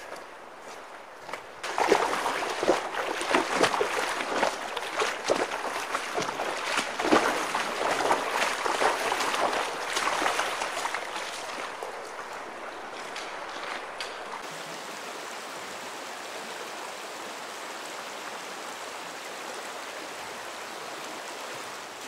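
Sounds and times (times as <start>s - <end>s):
boots wading through muddy water: 0.0s - 14.5s.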